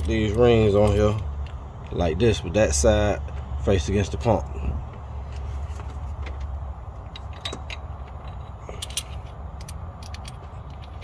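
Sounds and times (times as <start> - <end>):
steady low rumble: 0.0 - 11.0
metal parts clinking: 7.1 - 11.0.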